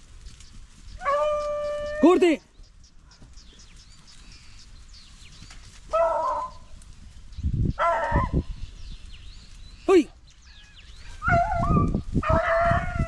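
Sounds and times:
dogs baying: 1.0s - 2.1s, 5.9s - 6.7s, 7.8s - 8.4s.

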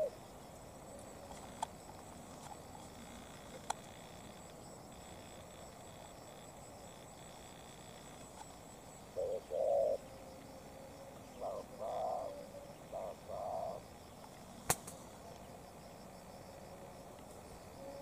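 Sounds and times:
dove cooing: 9.1s - 13.8s, 17.8s - 18.0s
sharp click: 14.6s - 15.0s.

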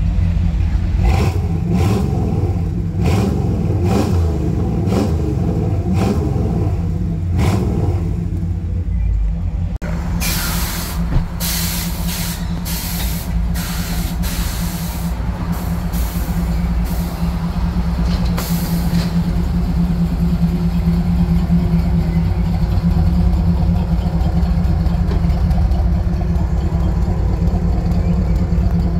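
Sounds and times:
air suspension hissing: 10.2s - 17.3s, 18.2s - 19.2s.

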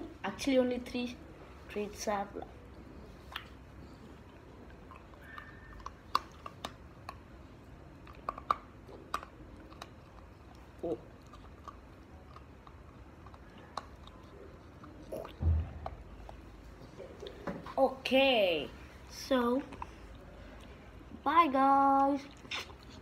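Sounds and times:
puppy crunching a treat: 3.2s - 17.4s
low thump: 15.4s - 16.2s.

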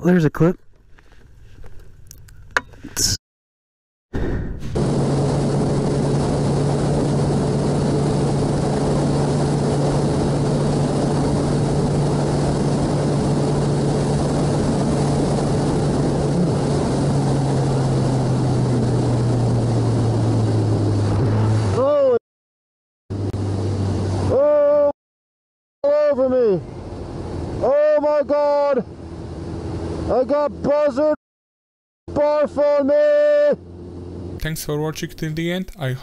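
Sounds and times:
wind noise on microphone: 4.2s - 21.8s
motorcycle engine cruising: 4.8s - 22.0s.

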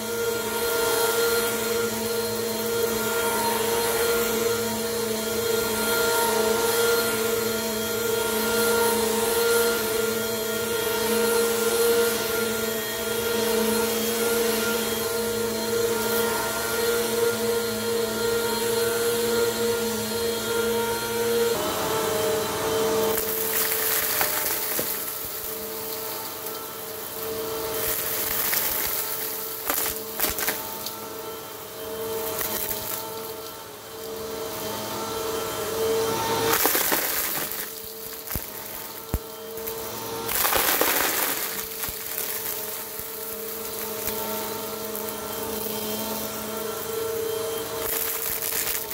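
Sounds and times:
vacuum cleaner running: 0.0s - 48.9s
crunching and rattling debris: 36.5s - 45.0s.

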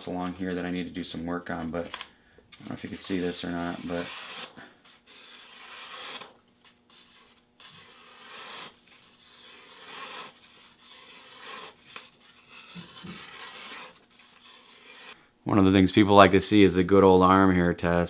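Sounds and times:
knife slicing paper: 2.7s - 15.2s.

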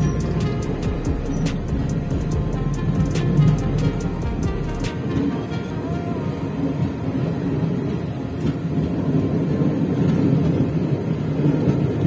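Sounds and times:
background music with a beat: 0.0s - 5.9s
moving train running noise: 0.0s - 12.0s.

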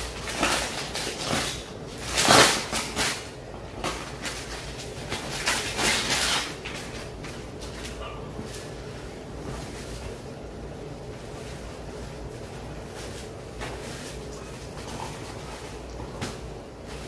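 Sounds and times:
plastic bag crinkling and rustling: 0.0s - 8.8s.

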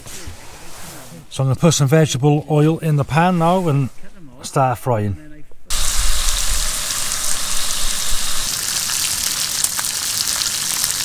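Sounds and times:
meat sizzling in a skillet: 5.7s - 11.0s.

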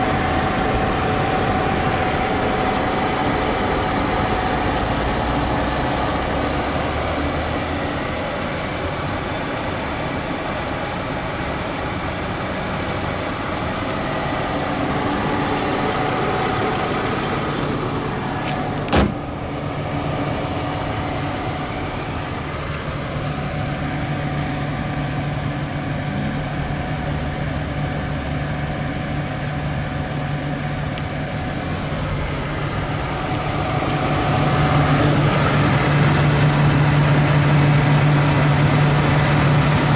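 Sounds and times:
car engine idling: 0.0s - 39.9s
car bonnet slamming shut: 18.4s - 19.3s.

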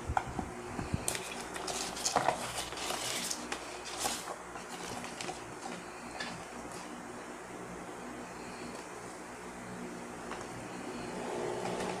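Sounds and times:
cardboard box rustling and scraping: 1.1s - 5.8s.

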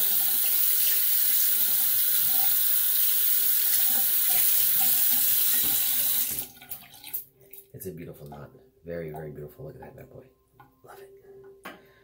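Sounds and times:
tap water splashing into sink: 0.0s - 7.2s.

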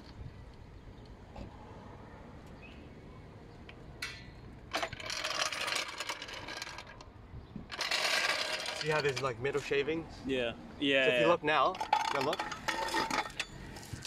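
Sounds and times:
floor jack rattling over asphalt: 4.6s - 9.4s, 11.7s - 14.0s.

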